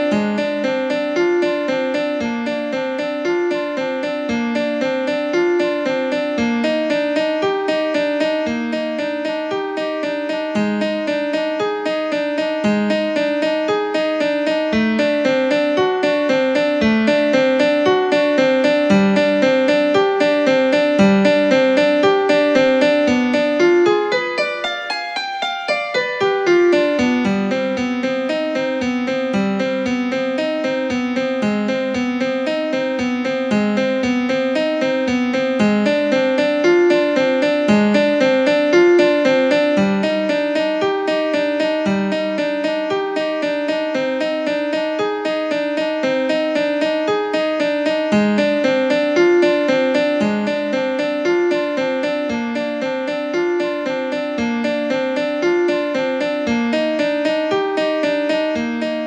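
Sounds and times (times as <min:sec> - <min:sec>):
piano music: 0:00.0 - 0:59.0.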